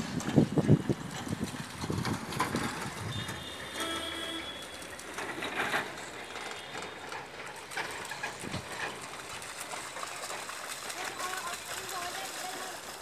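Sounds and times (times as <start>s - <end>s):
dogs splashing in puddle: 0.0s - 13.0s
outdoor background noise: 0.0s - 13.0s.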